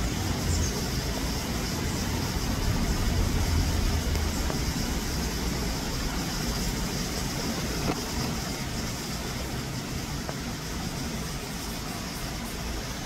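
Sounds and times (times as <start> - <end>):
even hiss: 0.0 - 13.0
low rumble: 1.9 - 7.5.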